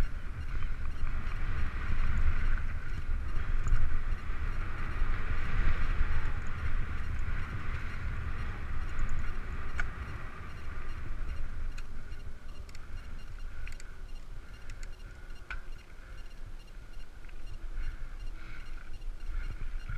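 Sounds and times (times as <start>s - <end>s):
wind buffeting microphone: 0.0s - 15.2s
bike clicking over bumps: 0.0s - 19.9s
bike tyres rolling over gravel: 0.1s - 12.1s.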